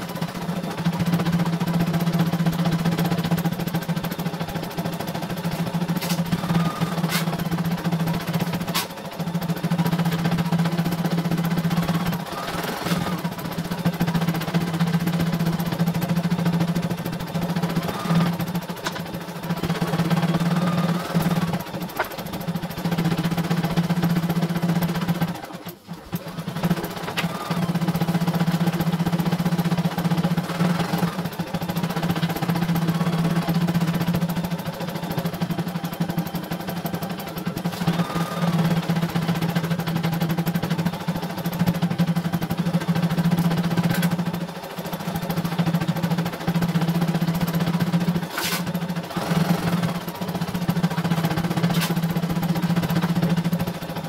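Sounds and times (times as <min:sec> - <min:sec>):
motor hum: 0:00.0 - 0:54.0.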